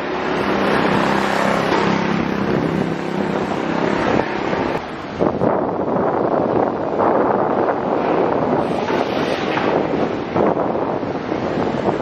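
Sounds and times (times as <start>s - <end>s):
vehicle engine humming: 0.0s - 5.2s
city street traffic: 0.0s - 12.0s
wind buffeting microphone: 0.0s - 12.0s.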